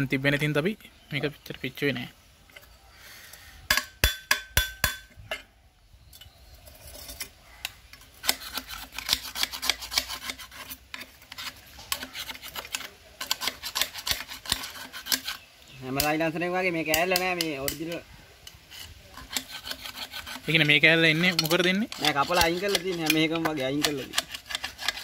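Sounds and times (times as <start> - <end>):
screwdriver scraping metal pipe: 6.2 - 16.2, 16.9 - 25.0.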